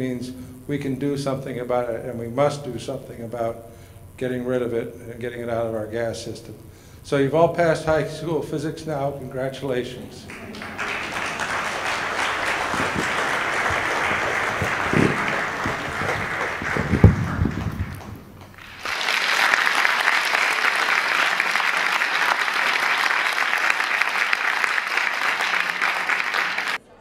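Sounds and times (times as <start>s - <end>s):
audience applauding: 10.3s - 26.8s.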